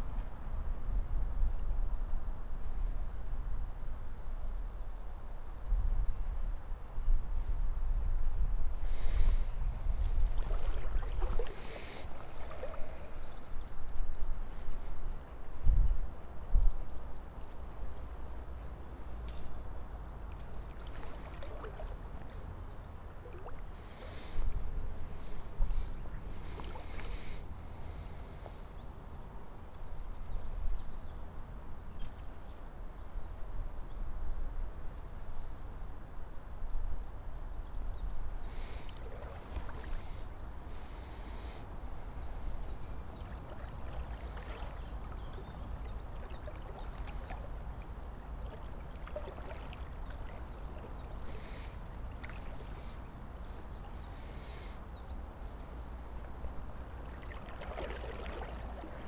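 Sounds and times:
river water sloshing around legs: 0:10.0 - 0:13.7, 0:20.2 - 0:28.1, 0:38.6 - 0:54.8, 0:55.4 - 0:59.0.

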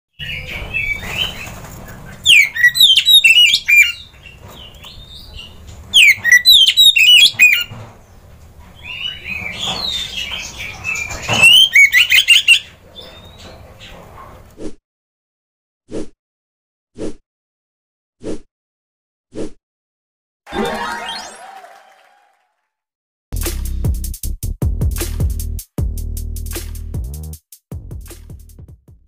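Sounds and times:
bird singing whistled phrases: 0:06.0 - 0:07.6.

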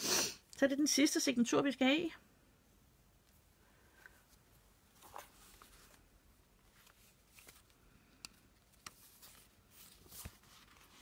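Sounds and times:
paper rustling: 0:04.2 - 0:07.8, 0:08.6 - 0:11.0.

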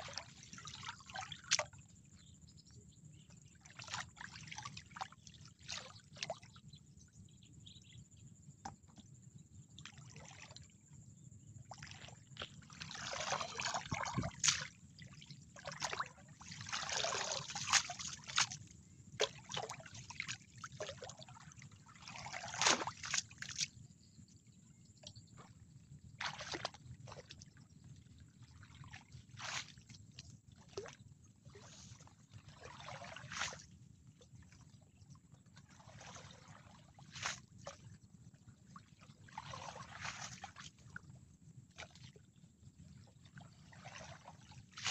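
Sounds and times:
muddy water splashing: 0:00.0 - 0:01.7, 0:11.8 - 0:23.7, 0:26.2 - 0:27.3, 0:28.8 - 0:29.9, 0:32.5 - 0:33.7, 0:39.3 - 0:40.9, 0:43.7 - 0:44.9.

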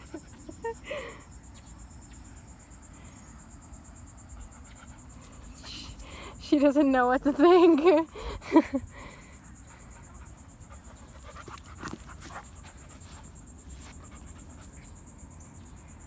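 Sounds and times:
insects chirring: 0:00.0 - 0:16.0
faint rustles and ticks: 0:04.3 - 0:15.2.

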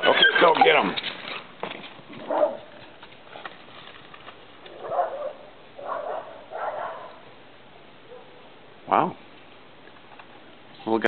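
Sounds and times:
dog barking: 0:02.2 - 0:02.7, 0:04.7 - 0:07.3, 0:08.0 - 0:08.5.

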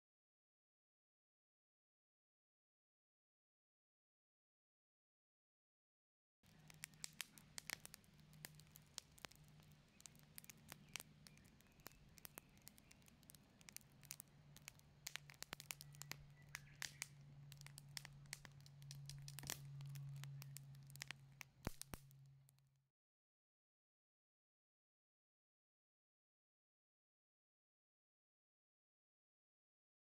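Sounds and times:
low steady hum: 0:06.5 - 0:22.5
logs crackling in fire: 0:06.5 - 0:22.6.

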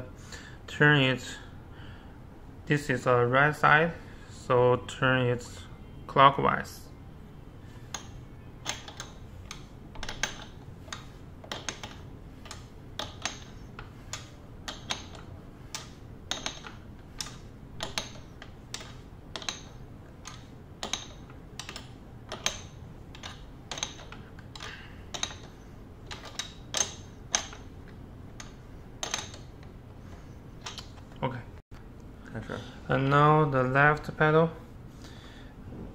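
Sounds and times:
wrench metallic clicks: 0:07.9 - 0:31.2.

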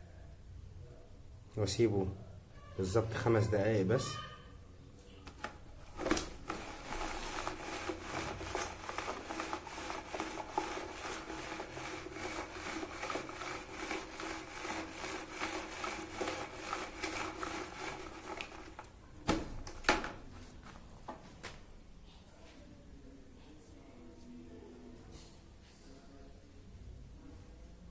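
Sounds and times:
rhythmic scraping and rubbing: 0:05.8 - 0:18.9.

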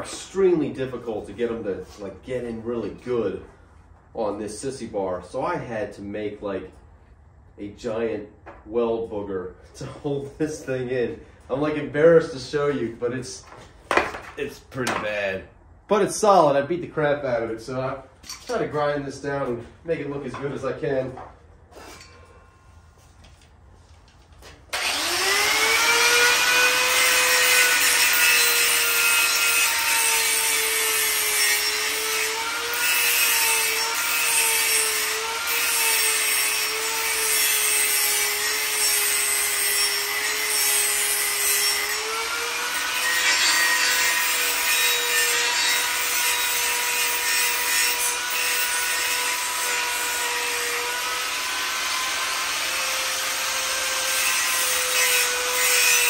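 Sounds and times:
angle grinder motor whine: 0:24.7 - 0:28.1
grinding metal rasp: 0:24.8 - 0:56.0.

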